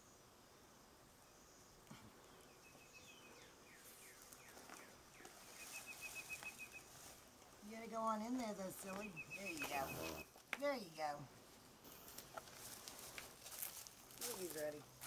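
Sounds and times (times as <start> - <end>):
bird chirps: 2.4 - 6.9, 8.8 - 10.3
rustling of dry leaves: 3.7 - 10.5, 11.3 - 15.0.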